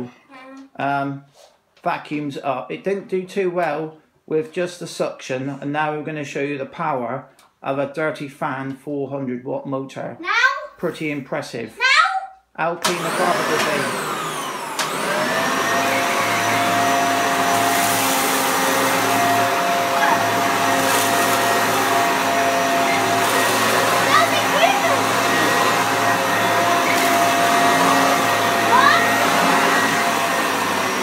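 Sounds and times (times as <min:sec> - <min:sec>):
upright vacuum cleaner running: 0:12.8 - 0:31.0.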